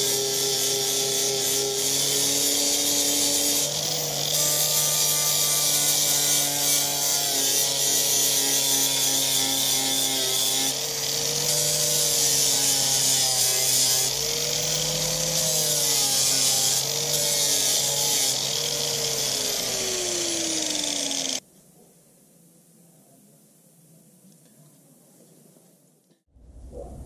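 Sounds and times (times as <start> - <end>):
angle grinder grinding metal: 0.0 - 21.4.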